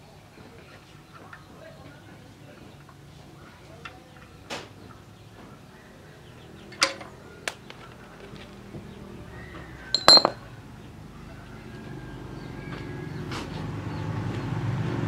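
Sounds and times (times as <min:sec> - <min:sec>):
metallic clinks of tools: 0:10.0 - 0:10.4.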